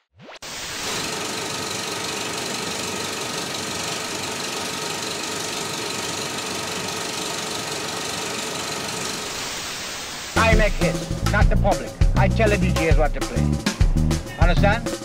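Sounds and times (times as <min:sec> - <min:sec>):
crackling static noise: 0:00.2 - 0:10.9.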